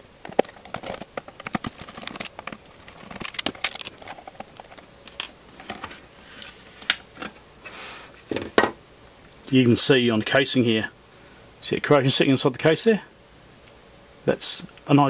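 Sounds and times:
plastic parts handled on a mat: 0.2 - 7.4.

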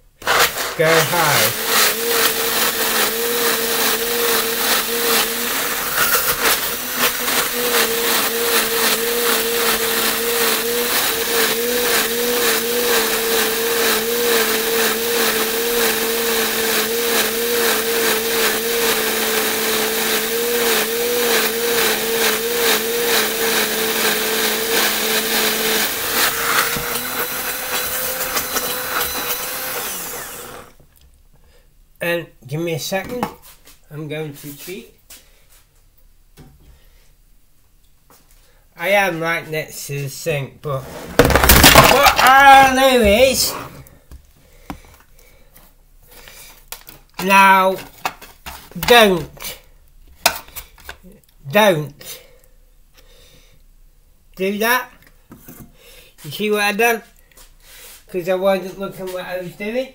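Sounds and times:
hand blender motor whine: 0.2 - 30.8, 41.2 - 42.8.

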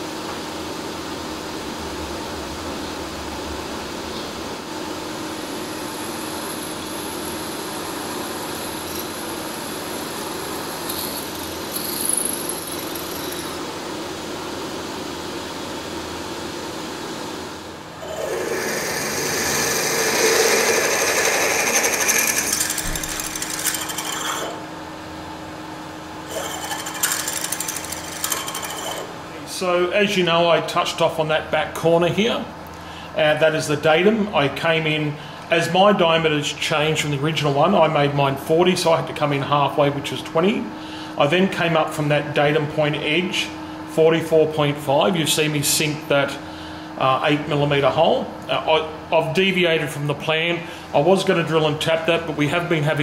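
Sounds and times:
milling machine running: 6.3 - 13.6, 17.8 - 25.2, 26.1 - 29.4
drill cutting into steel: 10.8 - 13.6, 18.0 - 24.7, 26.3 - 29.1.

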